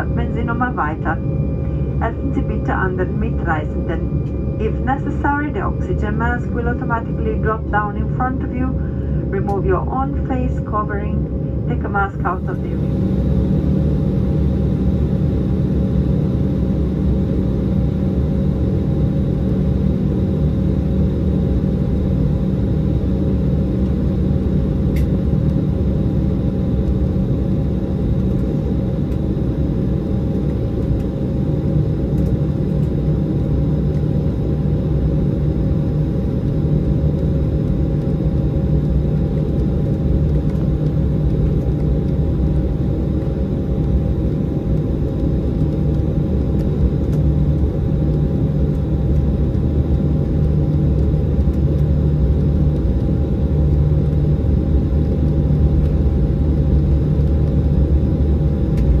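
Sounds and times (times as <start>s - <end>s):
steady whining tones: 0.0s - 17.4s
jet engines humming: 0.0s - 59.0s
low rumble: 0.0s - 59.0s.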